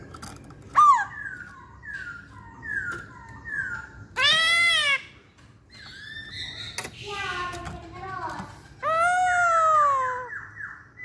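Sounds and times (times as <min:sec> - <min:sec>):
bird whistling song: 0:00.7 - 0:05.1, 0:05.7 - 0:07.4, 0:08.8 - 0:11.0
harsh drawn-out bird call: 0:00.7 - 0:05.2.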